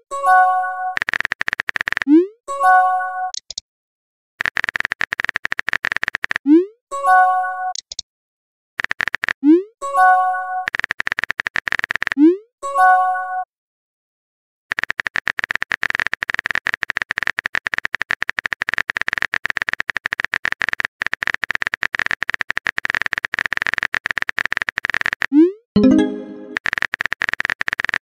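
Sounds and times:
electronic keyboard typing clicks: 0.9s - 2.2s, 3.3s - 3.6s, 4.4s - 6.5s, 7.7s - 8.0s, 8.8s - 9.6s, 10.6s - 12.2s, 14.7s - 28.0s
chiming message tone: 25.8s - 26.6s.

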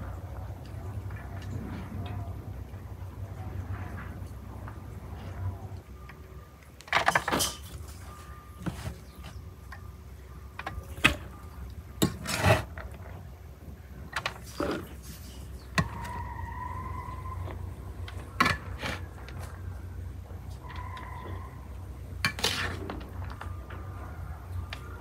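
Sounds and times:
low steady hum: 0.0s - 25.0s
metal spatula scraping a pan: 22.3s - 22.8s.

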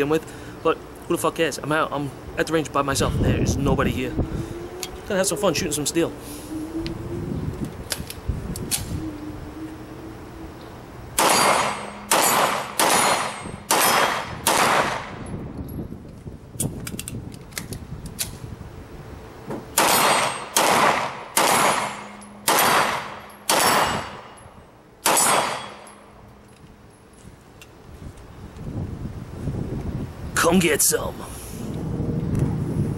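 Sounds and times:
pistol shots: 11.2s - 15.2s, 19.8s - 24.2s, 25.0s - 25.8s.

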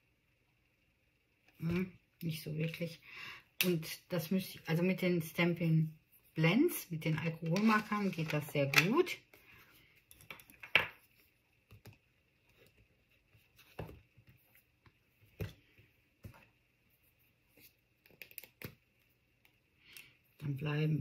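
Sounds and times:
paper rustling: 7.3s - 8.8s.

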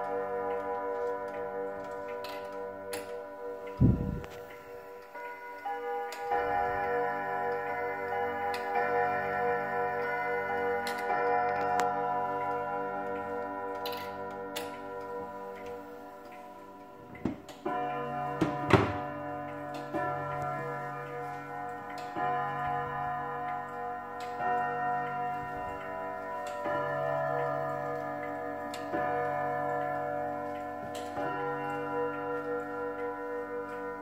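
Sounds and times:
clock striking on gong rod: 0.0s - 34.0s
sharp knocks: 18.4s - 19.2s.

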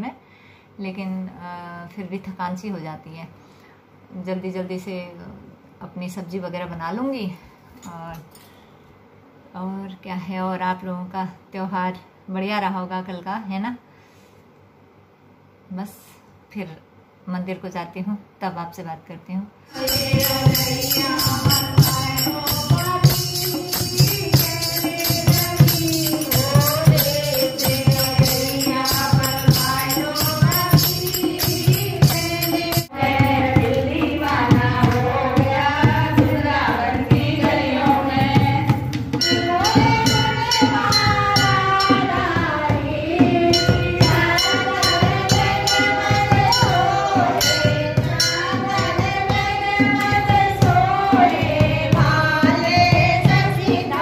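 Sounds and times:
jingling percussion: 19.7s - 54.0s
women singing devotional song: 19.7s - 54.0s
rhythmic hand clapping: 19.8s - 38.1s, 43.3s - 52.4s.

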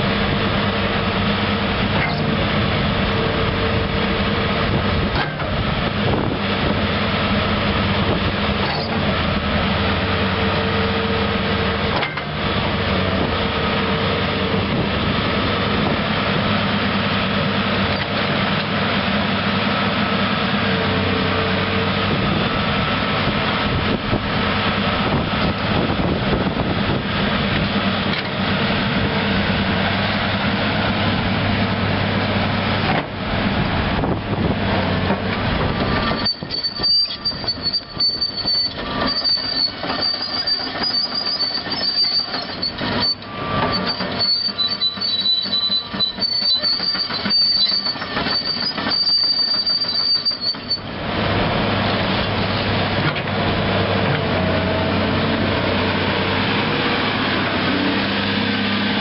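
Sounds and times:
excavator diesel engine running: 0.0s - 59.0s
steel tracks clanking and squealing: 1.9s - 6.2s, 8.6s - 9.4s, 10.4s - 14.8s, 34.7s - 51.5s.

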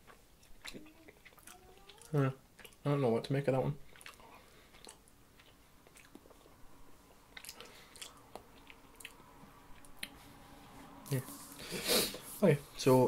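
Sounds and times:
person chewing candy: 0.0s - 2.9s, 3.8s - 10.1s.

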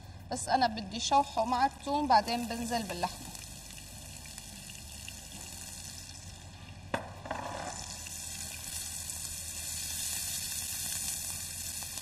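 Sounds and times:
onions sizzling in a pan: 2.2s - 6.3s, 7.7s - 12.0s.

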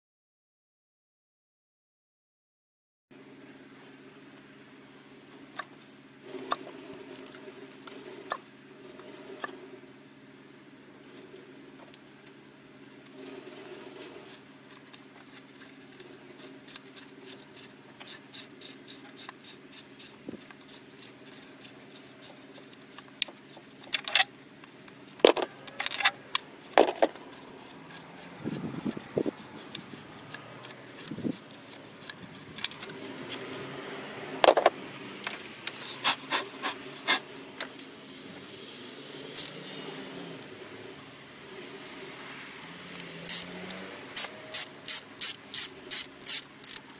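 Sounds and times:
snaps and rattles: 18.8s - 33.5s, 34.4s - 37.8s
rubber boots clicking and rubbing: 26.4s - 33.6s.

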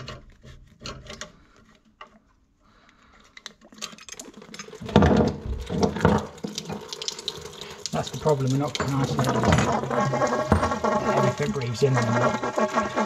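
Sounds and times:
water splashing out of pipe: 4.8s - 13.0s.

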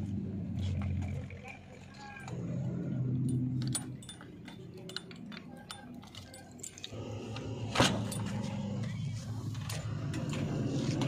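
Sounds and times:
low hum: 0.0s - 11.0s
keys clinking on keyring: 3.2s - 8.8s.

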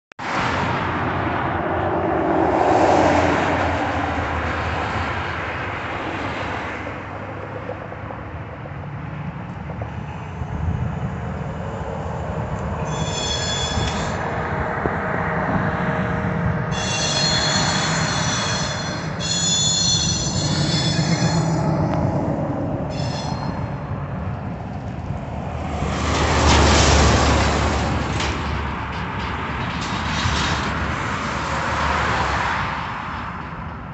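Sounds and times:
road traffic passing: 0.2s - 33.9s
diesel locomotive engine rumble: 0.3s - 33.9s
high-pitched squealing: 12.8s - 14.6s, 16.7s - 23.9s.

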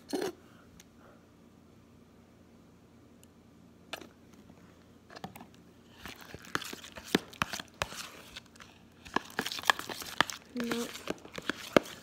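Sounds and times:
spoon stirring slime: 5.9s - 12.0s.

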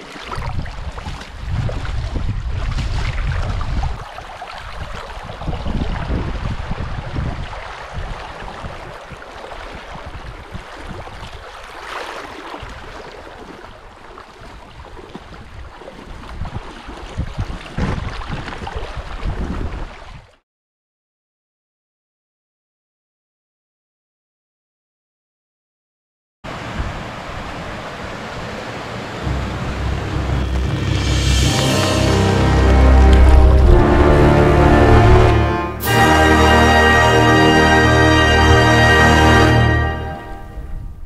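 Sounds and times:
choppy lake water: 0.0s - 20.4s, 26.5s - 41.0s
wind buffeting microphone: 0.3s - 11.5s, 14.4s - 20.3s.

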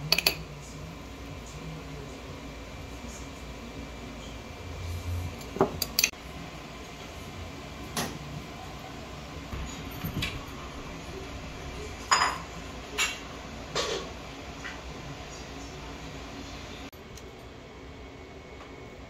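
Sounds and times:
kitchenware clinking and knocking: 12.0s - 14.8s.

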